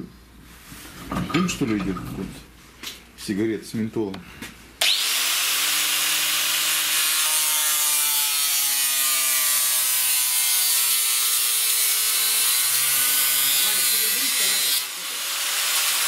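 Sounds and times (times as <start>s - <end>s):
angle grinder motor whine: 4.8s - 16.0s.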